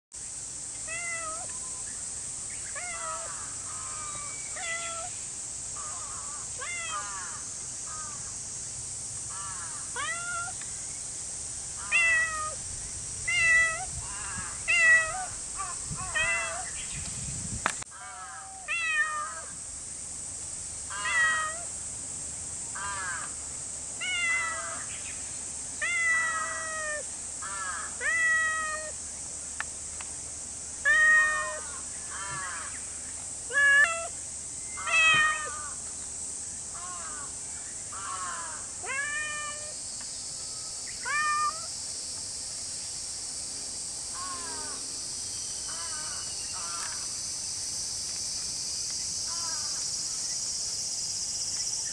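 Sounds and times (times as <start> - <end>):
cat meowing: 0.9 - 1.5, 4.6 - 5.1, 10.0 - 10.5, 11.9 - 12.6, 13.3 - 13.9, 14.7 - 15.3, 16.1 - 16.6, 18.4 - 19.4, 21.0 - 21.6, 25.8 - 27.0, 28.0 - 28.9, 30.9 - 31.6, 34.8 - 35.6, 38.8 - 39.7, 41.1 - 41.7
high-pitched insect drone: 24.0 - 29.2, 30.7 - 51.9.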